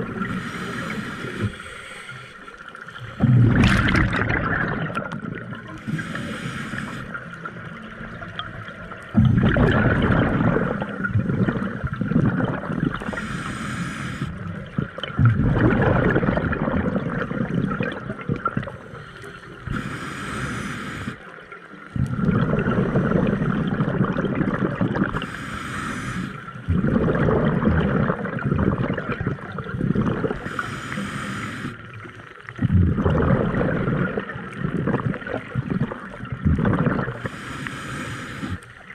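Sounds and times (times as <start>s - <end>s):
gurgle of exhaled bubbles: 0.0s - 1.6s, 2.9s - 13.6s, 14.2s - 19.0s, 21.8s - 25.4s, 26.5s - 30.8s, 31.8s - 37.5s
regulator inhale hiss: 0.2s - 3.0s, 5.8s - 7.4s, 13.0s - 14.4s, 18.9s - 21.4s, 25.2s - 26.7s, 30.4s - 31.9s, 37.2s - 38.9s.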